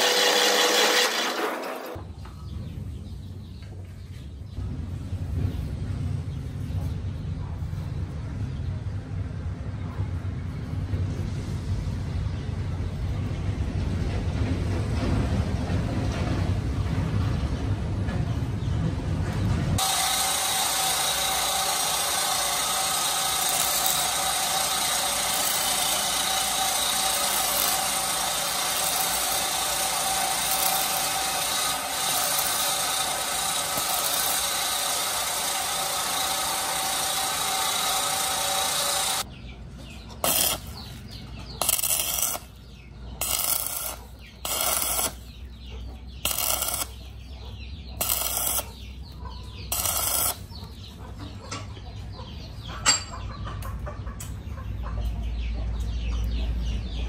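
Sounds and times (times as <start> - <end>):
welding arc noise: 0.0 - 2.0, 19.8 - 39.3, 40.2 - 42.6, 43.2 - 45.4, 46.2 - 47.2, 48.0 - 49.0, 49.6 - 50.6.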